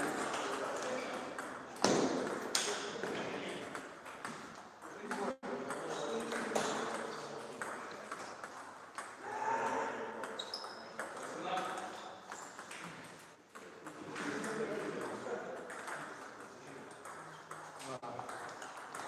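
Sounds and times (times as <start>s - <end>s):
voices in a hall: 0.0s - 19.0s.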